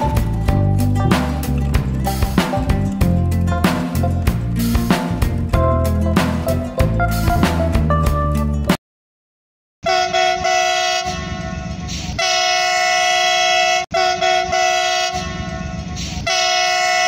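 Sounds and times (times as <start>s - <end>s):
train horn chord: 9.8s - 17.0s.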